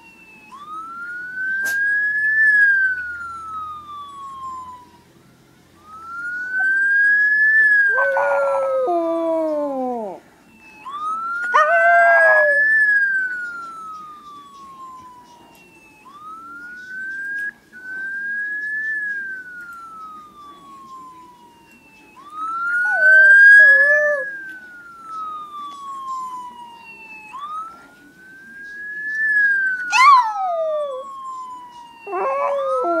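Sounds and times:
police siren wailing: 0:00.0 - 0:33.0
small dog howling: 0:11.5 - 0:12.6, 0:29.8 - 0:31.1, 0:32.0 - 0:33.0.

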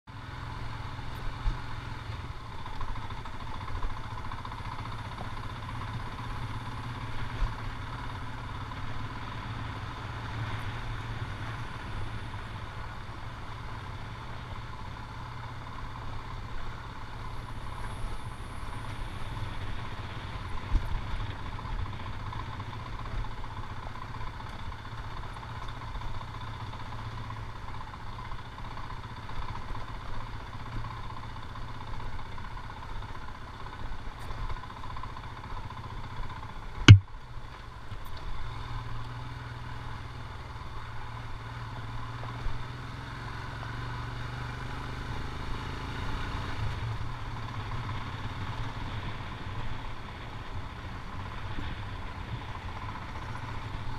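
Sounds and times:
motorcycle engine running: 0:00.1 - 0:53.9
sharp knocks over bumps: 0:36.8 - 0:37.1.

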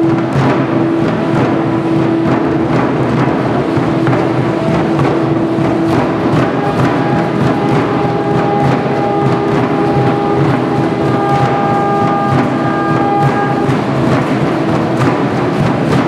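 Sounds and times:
drums beating: 0:00.0 - 0:16.0
long held wind note: 0:05.2 - 0:15.0.

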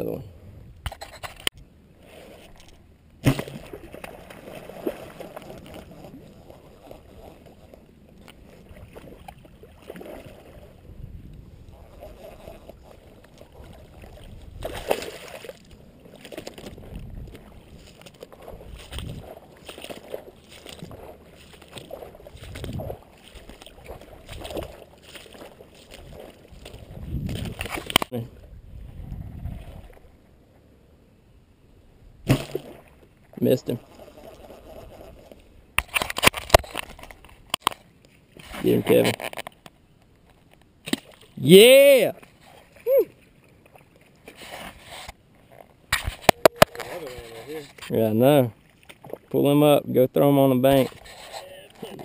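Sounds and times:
sharp thump: 0:03.2 - 0:03.6
footsteps splashing through water: 0:03.2 - 0:10.6, 0:12.2 - 0:28.1
footsteps on soft wet mud: 0:04.2 - 0:28.3.

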